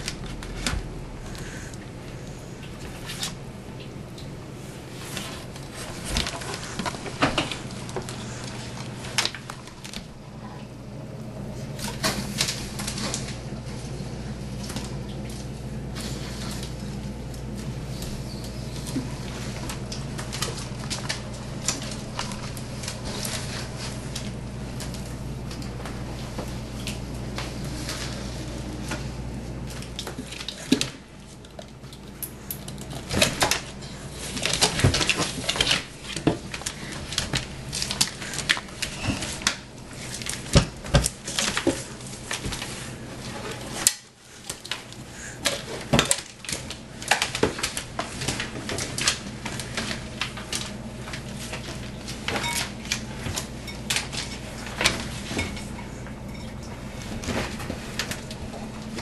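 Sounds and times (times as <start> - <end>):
low hum: 0.0 - 30.5.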